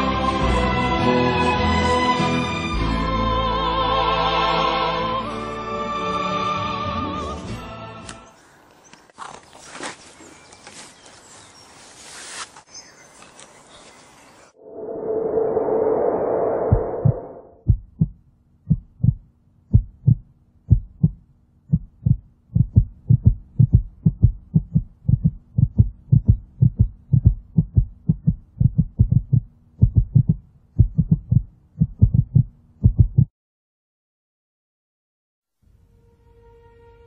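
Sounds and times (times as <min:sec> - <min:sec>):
heartbeat thumps: 0:16.6 - 0:33.3.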